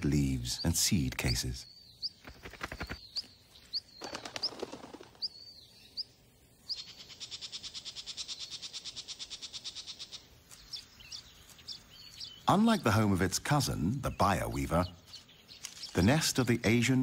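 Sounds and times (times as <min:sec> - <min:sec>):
songbird chirping: 0:00.0 - 0:17.0.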